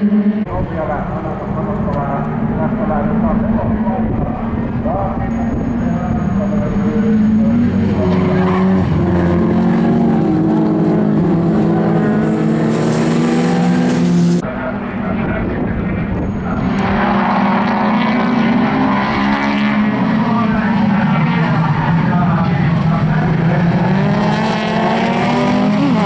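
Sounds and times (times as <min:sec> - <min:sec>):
race car engines running hard: 0:00.0 - 0:26.0
tyres skidding on loose surface: 0:07.9 - 0:14.4.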